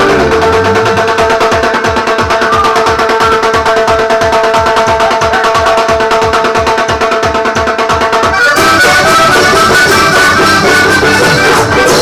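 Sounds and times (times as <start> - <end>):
bass pulse: 0.0 - 1.5
accordion playing: 0.0 - 2.3, 8.2 - 12.0.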